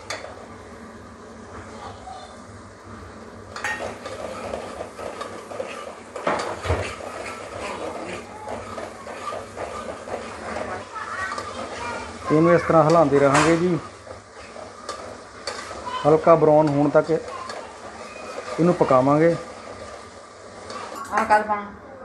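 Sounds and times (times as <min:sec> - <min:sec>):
soft sizzle of frying: 0:00.0 - 0:22.0
spoon scraping metal pot: 0:03.6 - 0:15.9.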